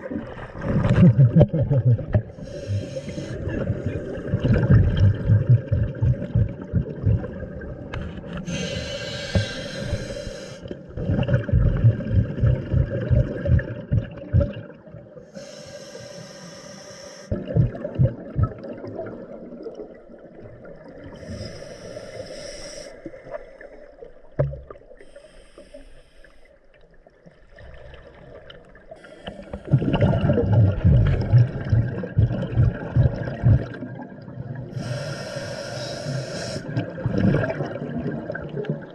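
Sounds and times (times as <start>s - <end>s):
regulator inhale hiss: 2.4s - 3.5s, 8.4s - 10.7s, 15.2s - 17.3s, 21.1s - 23.9s, 25.0s - 26.6s, 28.9s - 29.8s, 34.7s - 36.8s
rumbling exhaust bubbles: 3.4s - 7.9s, 11.0s - 14.7s, 29.7s - 34.0s.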